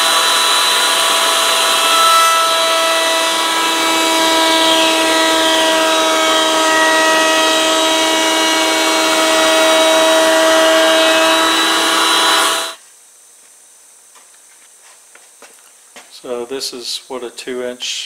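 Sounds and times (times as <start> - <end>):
router bit cutting wood: 0.0 - 12.8
router whining: 0.0 - 12.8.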